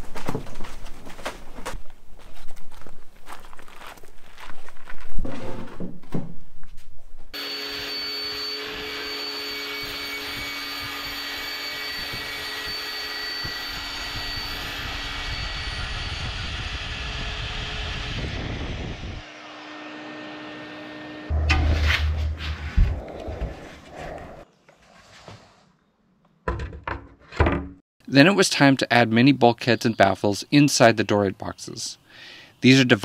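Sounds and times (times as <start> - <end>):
power tool motor whine: 7.4 - 22.6.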